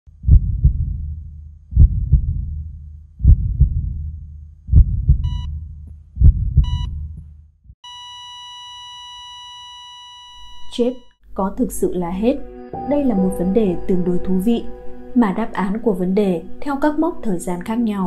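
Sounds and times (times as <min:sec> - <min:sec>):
heartbeat thumps: 0:00.1 - 0:07.8
heart monitor flatline tone: 0:04.7 - 0:05.6, 0:06.2 - 0:07.2, 0:07.8 - 0:11.2
heart monitor beeps: 0:05.2 - 0:05.6, 0:06.6 - 0:07.1, 0:07.8 - 0:11.2.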